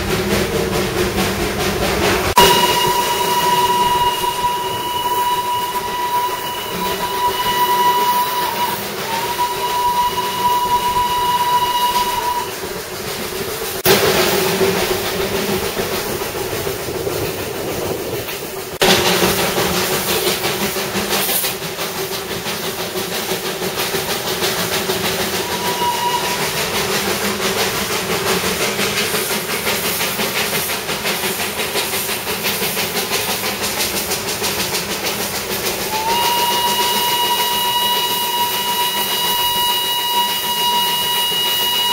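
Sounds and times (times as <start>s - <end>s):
steam hiss: 0.0s - 41.9s
train running noise: 0.0s - 41.9s
steam whistle blasts: 2.3s - 12.7s, 24.9s - 27.2s, 35.8s - 41.9s.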